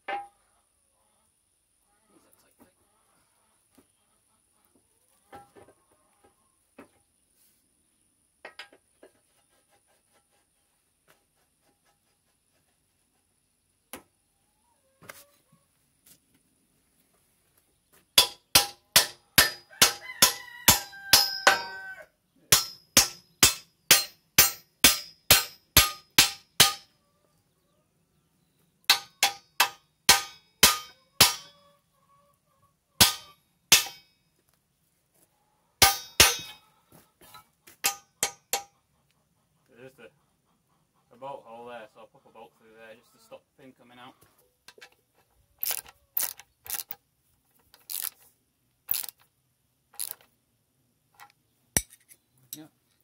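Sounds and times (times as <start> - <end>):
hammer striking steel pin: 18.2 - 21.7, 22.5 - 26.9, 28.9 - 31.5, 33.0 - 34.0, 35.8 - 36.6, 37.8 - 38.7.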